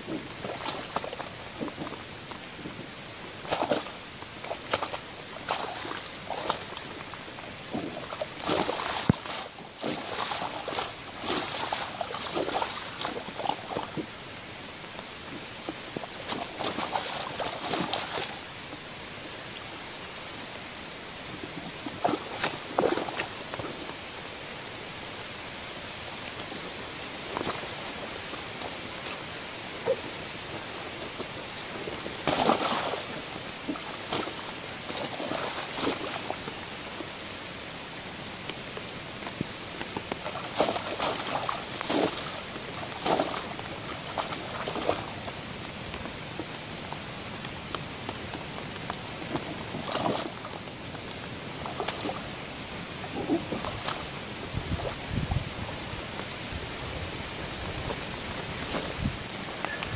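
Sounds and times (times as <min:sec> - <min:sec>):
light rain hiss: 0:00.0 - 0:59.9
waders squelching in mud: 0:03.5 - 0:06.9, 0:07.9 - 0:14.0, 0:16.2 - 0:18.5, 0:32.2 - 0:36.4, 0:40.1 - 0:45.3.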